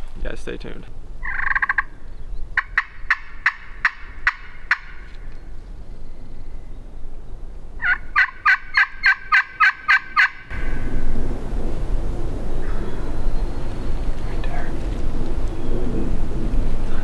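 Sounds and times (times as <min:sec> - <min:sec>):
turkey call yelping: 0:01.2 - 0:02.0, 0:02.6 - 0:05.0, 0:07.8 - 0:10.5.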